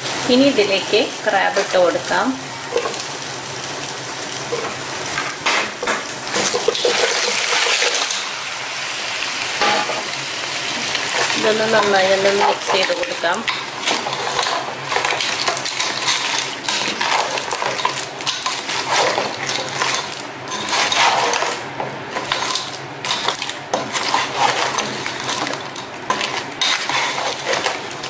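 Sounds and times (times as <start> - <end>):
crab shells clattering in pot: 5.5 - 8.3, 11.1 - 28.0.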